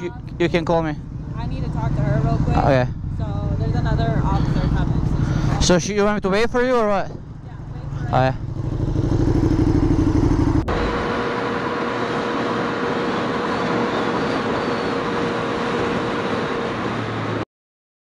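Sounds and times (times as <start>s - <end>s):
motorcycle engine running: 0.0s - 17.0s
wind and road noise: 0.0s - 17.4s.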